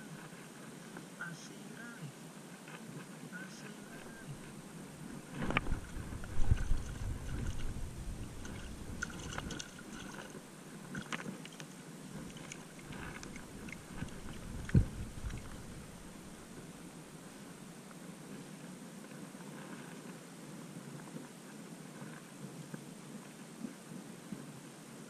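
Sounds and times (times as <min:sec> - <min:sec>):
wind buffeting microphone: 0:03.9 - 0:11.0, 0:12.1 - 0:17.6
seawater splashing and sloshing: 0:05.1 - 0:16.7.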